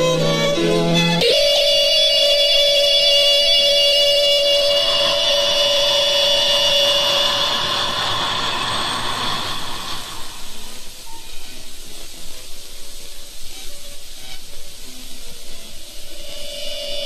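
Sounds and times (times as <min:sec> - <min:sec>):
radio static hiss: 0:00.0 - 0:17.0
steady tones: 0:00.0 - 0:17.0.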